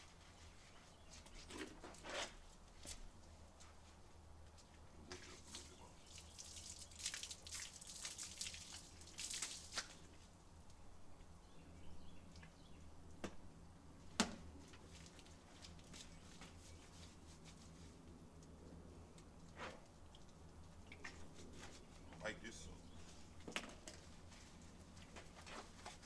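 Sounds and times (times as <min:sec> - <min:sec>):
hose water splashing on concrete: 0:05.1 - 0:10.3
hands scrubbing wet dog's coat: 0:14.9 - 0:18.1.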